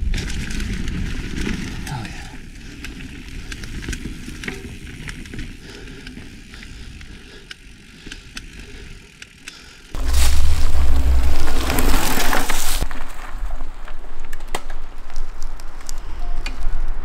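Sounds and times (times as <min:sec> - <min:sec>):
bike clicks and rattles: 0:00.0 - 0:10.3
bike tyre rumble on dirt: 0:00.0 - 0:17.0
loud low rumble: 0:10.0 - 0:12.8.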